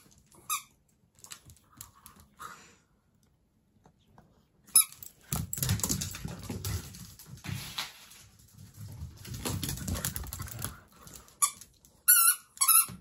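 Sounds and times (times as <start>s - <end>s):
puppy claws scrabbling on wooden floor: 5.0s - 12.0s.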